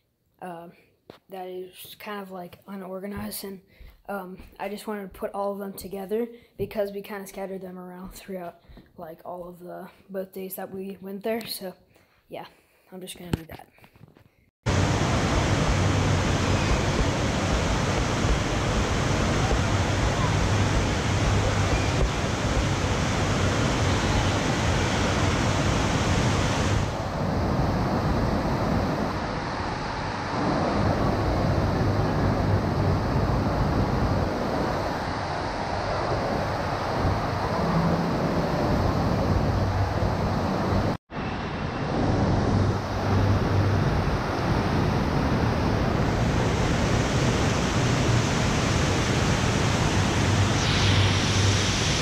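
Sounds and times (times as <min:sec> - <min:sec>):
low hum: 0:14.7 - 0:52.0
rushing water: 0:14.7 - 0:52.0.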